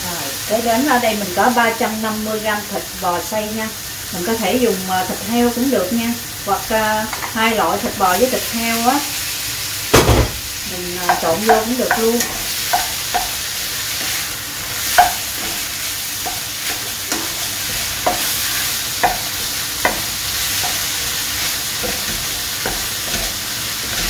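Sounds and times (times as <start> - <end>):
meat sizzling in a frying pan: 0.0 - 24.0
wooden spatula knocking on pan: 11.0 - 13.4, 14.9 - 15.2, 19.0 - 20.1, 21.8 - 23.4.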